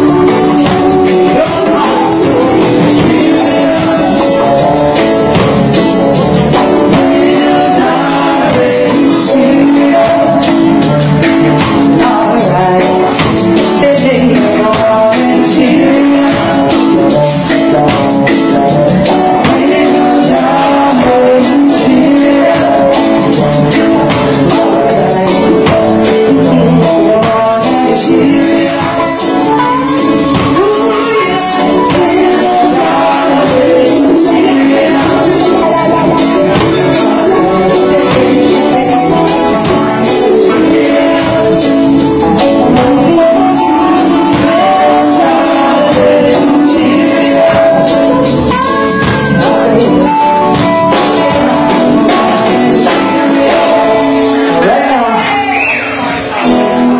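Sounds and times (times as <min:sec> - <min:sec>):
live reggae band playing: 0:00.0 - 0:56.9
woman singing: 0:24.5 - 0:54.8.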